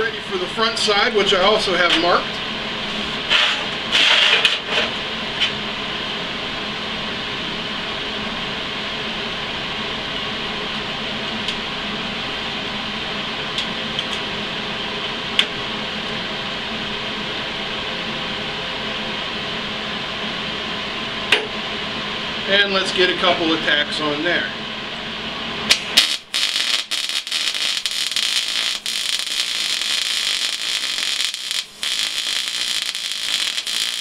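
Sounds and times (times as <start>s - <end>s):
steady background hum: 0.0s - 34.0s.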